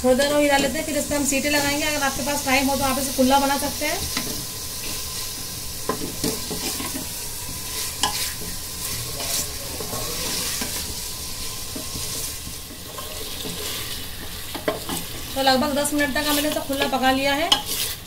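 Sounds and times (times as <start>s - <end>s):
meat sizzling in oil: 0.0s - 18.0s
spatula scraping metal pot: 5.9s - 18.0s.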